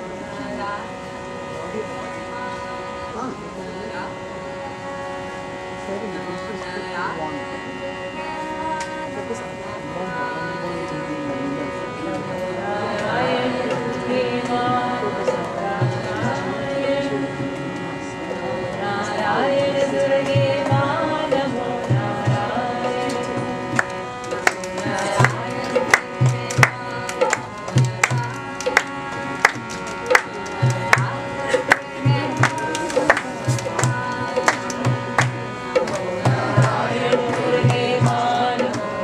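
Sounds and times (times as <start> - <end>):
sustained drone: 0.0 - 39.0
person chanting: 5.8 - 39.0
hand drum thumps: 24.4 - 38.9.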